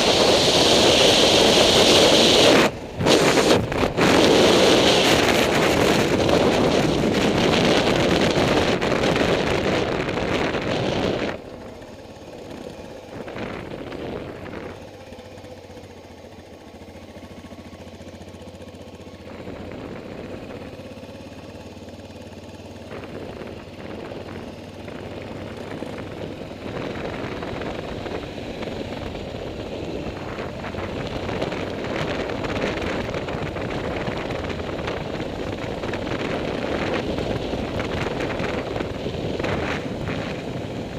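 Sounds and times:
wind rushing over microphone: 0.0s - 11.4s, 12.4s - 14.9s, 22.9s - 40.9s
motorcycle engine running: 0.0s - 40.9s.

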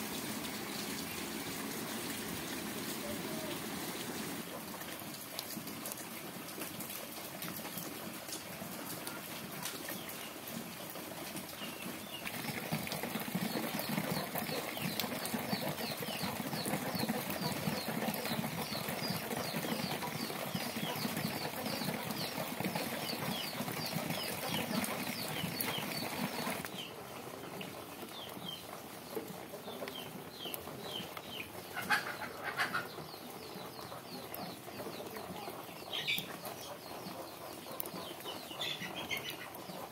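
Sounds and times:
rain falling and dripping: 0.0s - 39.9s
birds chirping: 11.5s - 27.3s, 28.0s - 39.9s.

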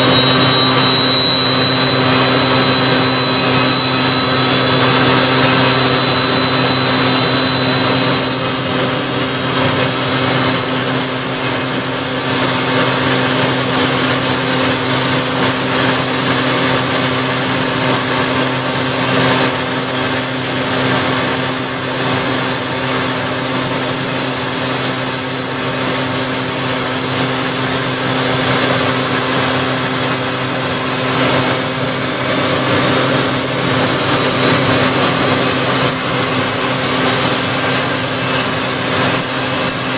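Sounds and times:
high turbine whine: 0.0s - 39.9s
jet engine roar: 0.0s - 39.9s.

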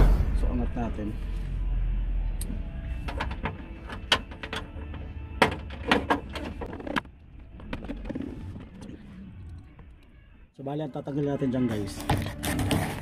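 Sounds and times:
clicks and knocks of parts: 3.0s - 8.9s.

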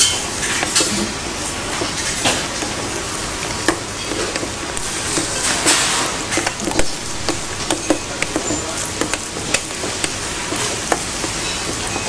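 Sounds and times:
spoon knocking and scraping metal bowl: 3.7s - 12.0s
steady hiss: 4.6s - 11.4s.

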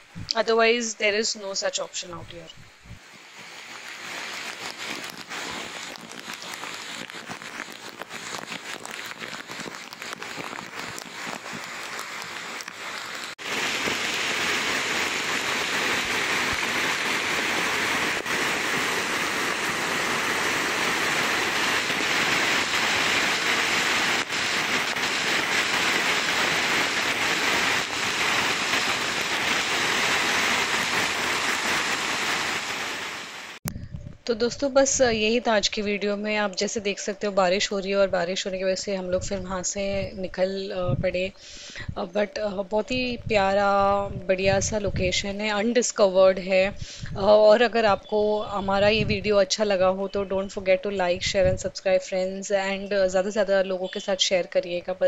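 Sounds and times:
waterfall pouring: 3.1s - 33.6s
water rushing over rocks: 3.2s - 33.6s.

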